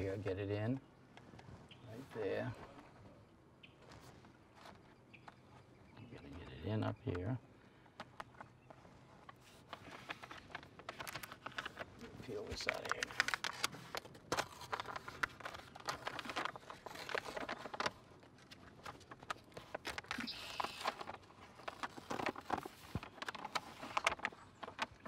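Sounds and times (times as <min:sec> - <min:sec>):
house wrap rustling: 0:08.4 - 0:25.0
release paper crackling: 0:09.2 - 0:25.0.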